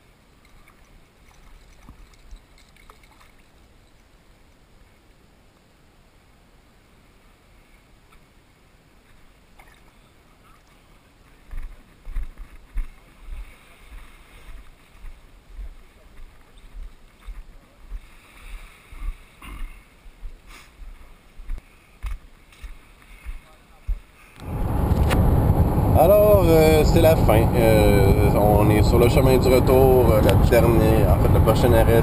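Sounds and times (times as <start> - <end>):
quiet hiss: 0.0 - 32.0.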